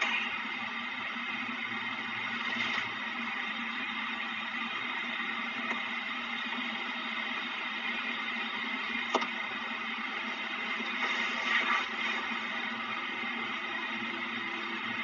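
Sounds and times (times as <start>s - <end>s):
microphone hiss and hum: 8.8s - 15.0s.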